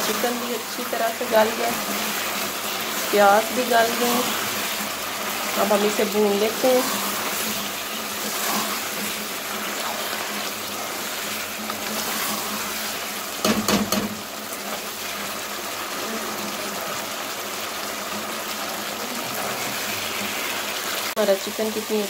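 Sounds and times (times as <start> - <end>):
spatula scraping a pan: 0.0 - 15.3
chicken sizzling in a pan: 0.0 - 22.0.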